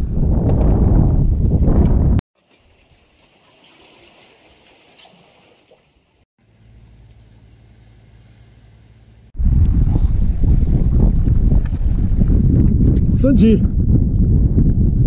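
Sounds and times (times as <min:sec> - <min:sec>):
wind and water hiss: 0:02.4 - 0:12.4
steady low hum: 0:06.4 - 0:12.2.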